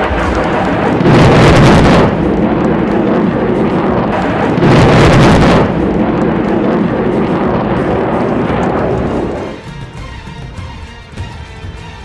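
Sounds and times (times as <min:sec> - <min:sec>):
bomb blast boom: 0:00.0 - 0:09.6
continuous rumbling noise: 0:00.0 - 0:10.8.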